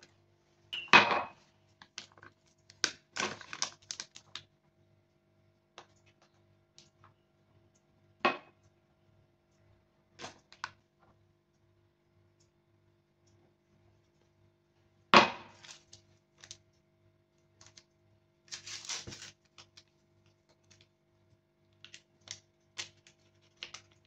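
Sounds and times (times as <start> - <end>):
paper bag crinkling: 3.1 - 4.4, 18.5 - 19.9.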